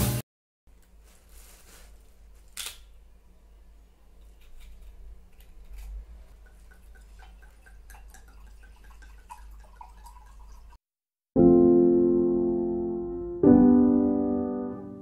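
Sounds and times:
plastic bag rustling: 1.0s - 2.5s
liquid glugging into a mug: 6.2s - 10.8s.

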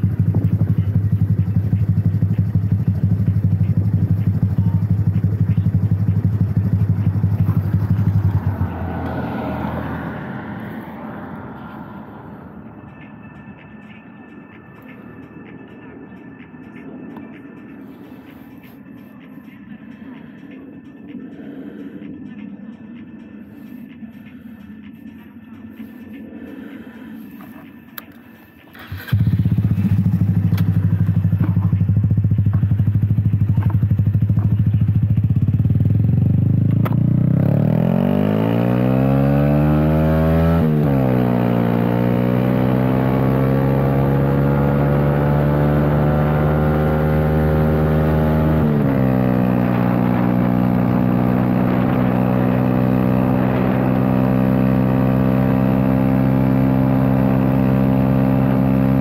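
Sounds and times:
motorcycle engine accelerating: 0.0s - 15.9s, 28.7s - 59.0s.

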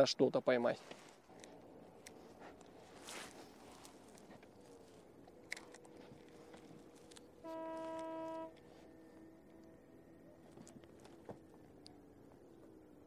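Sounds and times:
distant horn blast: 7.2s - 10.1s.

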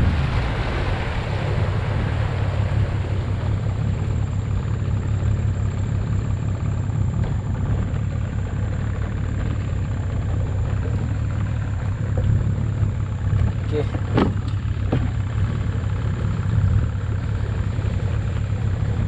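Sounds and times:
boat engine droning: 0.0s - 19.0s.

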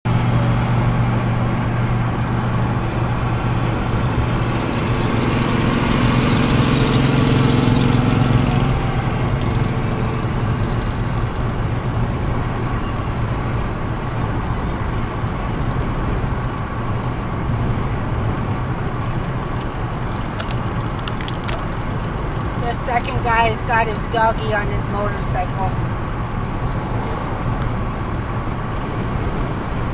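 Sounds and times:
low engine hum: 0.0s - 29.9s
tyre and road noise: 0.0s - 29.9s.

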